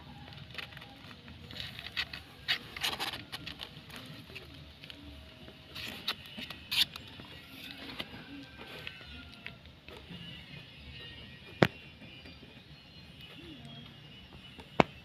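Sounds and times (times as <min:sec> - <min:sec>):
kittens scratching in cardboard box: 0:00.1 - 0:04.6, 0:05.6 - 0:09.5.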